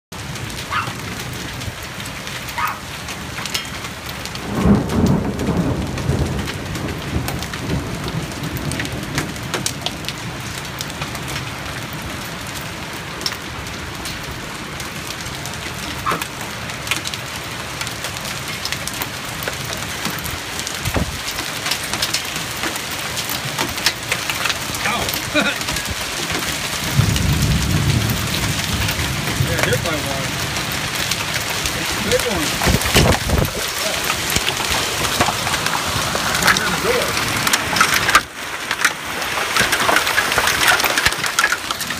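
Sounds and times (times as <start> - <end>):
heavy rain pouring: 0.1 - 41.9
hailstones ticking: 0.2 - 41.9
thunder rumbling: 3.1 - 18.7, 19.4 - 21.6, 24.1 - 41.9.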